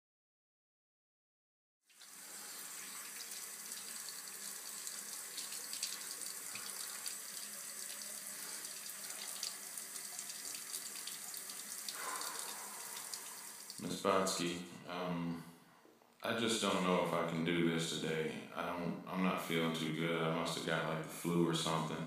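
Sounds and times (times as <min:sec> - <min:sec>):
tap water splashing into basin: 0:02.8 - 0:13.8.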